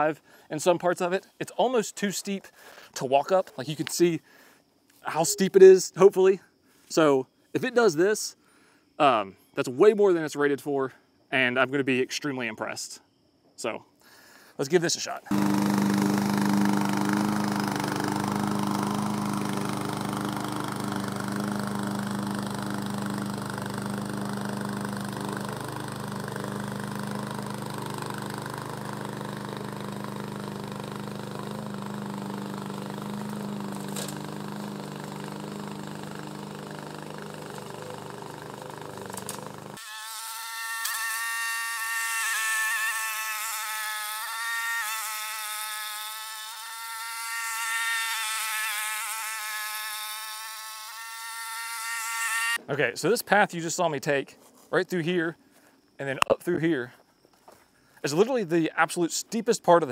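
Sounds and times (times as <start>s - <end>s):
mower engine running under load: 15.3s - 39.8s
thin high buzz: 15.3s - 52.6s.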